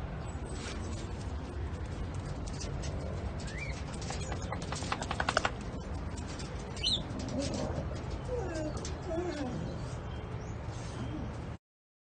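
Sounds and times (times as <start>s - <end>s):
sharp clicks: 4.2s - 5.7s.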